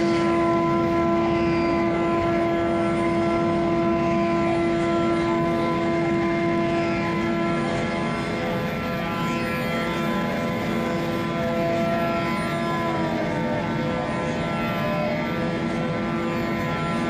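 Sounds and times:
train running rumble and hum: 0.0 - 17.0.

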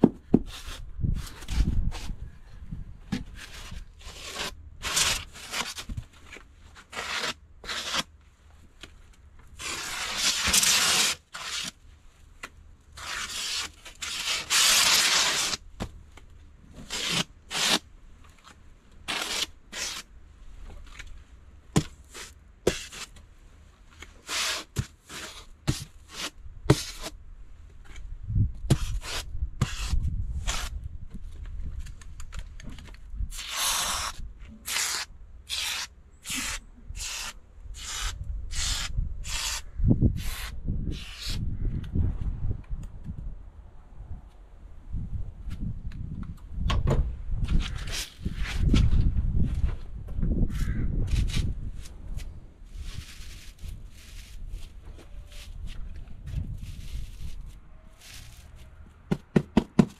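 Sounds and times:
polystyrene rubbing and scraping: 3.4 - 5.9, 6.8 - 8.1, 9.6 - 11.8, 13.0 - 15.6, 19.1 - 20.1, 22.1 - 23.1, 24.2 - 27.1, 33.3 - 39.6, 52.7 - 55.7, 56.3 - 58.7
polystyrene tearing scrapes: 3.4 - 5.9, 6.8 - 8.1, 9.6 - 11.8, 13.0 - 15.6, 16.8 - 17.8, 19.1 - 20.1, 24.2 - 27.1, 33.3 - 39.6, 52.7 - 55.7, 56.4 - 58.8.

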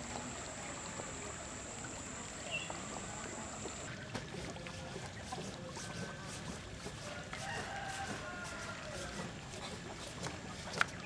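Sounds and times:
river water washing: 0.0 - 4.8
faint distant voices: 0.0 - 10.3
faint knocks and splashes: 0.0 - 11.0.

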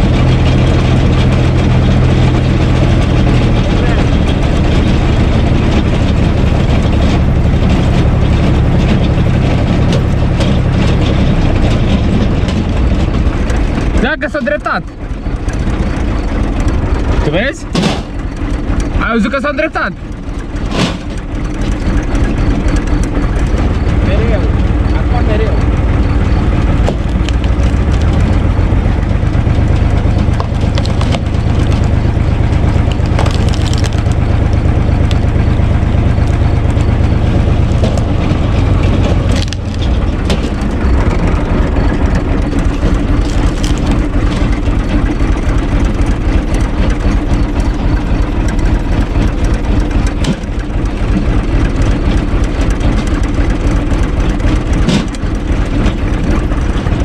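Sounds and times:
tractor diesel engine under load: 0.0 - 57.0
wood splitting cracks: 26.6 - 35.5, 37.4 - 47.7, 48.4 - 57.0.

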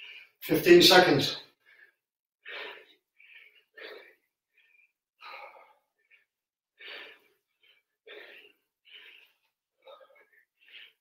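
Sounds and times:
man breathing hard: 1.5 - 11.0.

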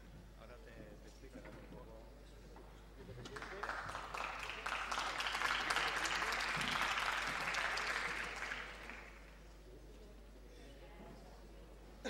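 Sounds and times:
audience applause: 3.2 - 9.4.

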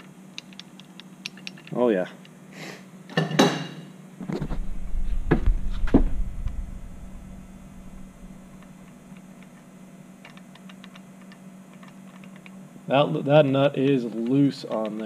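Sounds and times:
steady low hum: 0.0 - 15.0
low rumbling handling noise: 4.2 - 9.7.

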